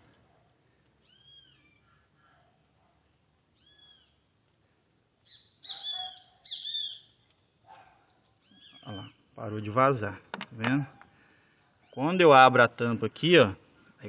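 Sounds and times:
animal short high calls: 5.6s - 7.0s.

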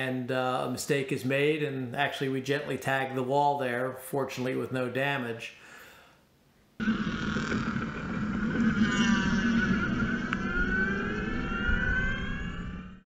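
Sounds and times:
electric car drivetrain whine: 6.8s - 13.0s
low hum and road noise: 6.8s - 13.0s.

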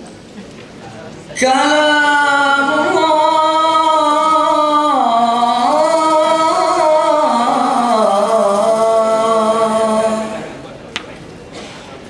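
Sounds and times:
man singing unaccompanied: 1.4s - 10.6s.

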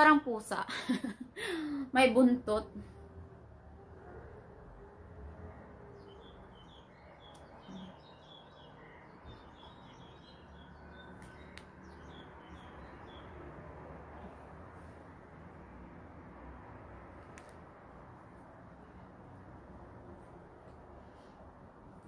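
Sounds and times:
faint bird chirping: 2.8s - 15.2s.

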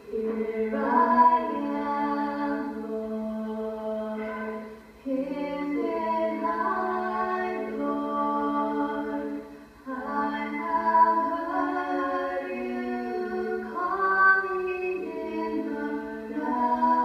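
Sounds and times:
girls singing a duet: 0.0s - 17.0s.

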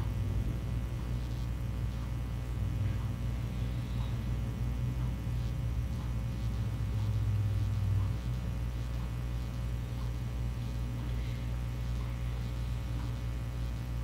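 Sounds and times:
low electrical hum: 0.0s - 14.0s
faint soft ticks: 8.0s - 10.8s.

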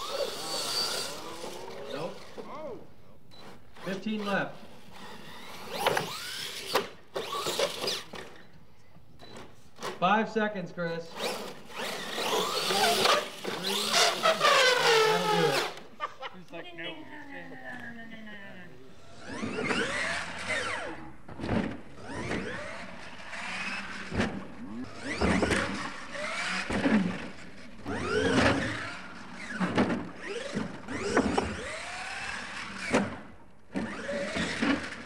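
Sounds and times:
toy truck motors whining: 0.0s - 2.7s, 3.3s - 8.6s, 11.0s - 16.0s, 19.0s - 35.0s
toy trucks thudding on dirt: 3.8s - 8.4s, 11.2s - 15.9s, 19.3s - 35.0s.

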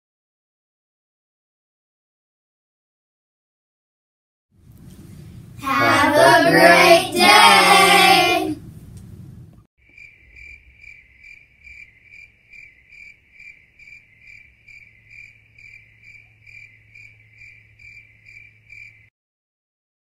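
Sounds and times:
faint low hum: 4.6s - 9.6s
cricket chirping: 9.8s - 19.1s.

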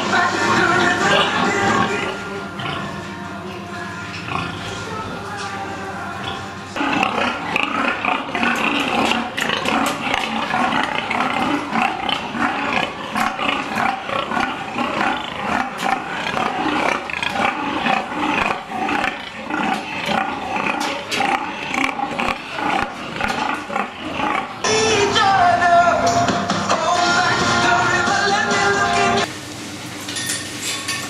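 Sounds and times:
pigs squealing: 0.0s - 5.3s, 6.0s - 25.1s.

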